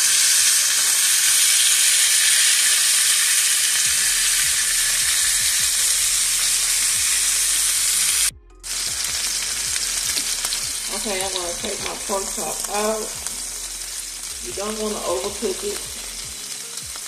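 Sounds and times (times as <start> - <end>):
pork chops sizzling in a pan: 0.0 - 17.0.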